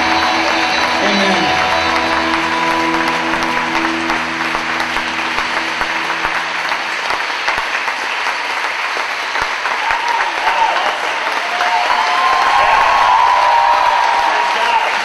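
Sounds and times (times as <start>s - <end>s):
band holding a chord: 0.0s - 7.6s
large audience applauding: 0.0s - 15.0s.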